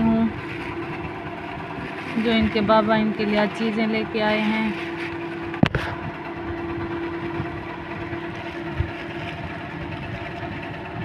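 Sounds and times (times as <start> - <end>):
steady motor hum: 0.0 - 11.0
plastic bags rustling: 0.2 - 5.6, 7.9 - 10.7.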